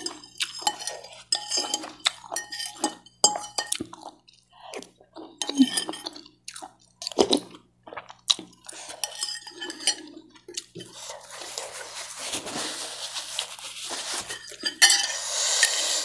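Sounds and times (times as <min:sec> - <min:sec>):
cutlery clinking on ceramic bowl: 0:00.0 - 0:04.0, 0:05.4 - 0:06.2, 0:08.9 - 0:11.8, 0:14.0 - 0:15.3.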